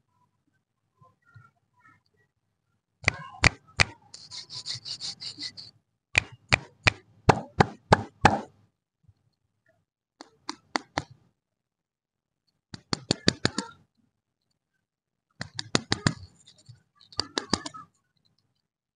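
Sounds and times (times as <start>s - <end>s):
sharp knocks and pops: 6.2s - 8.6s, 10.2s - 11.2s, 12.7s - 13.7s, 15.4s - 16.4s.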